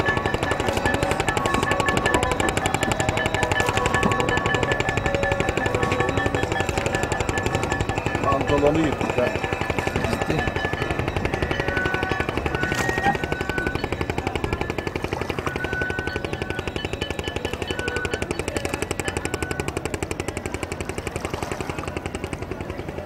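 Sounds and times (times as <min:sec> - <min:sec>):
small boat engine chugging: 0:00.0 - 0:23.0.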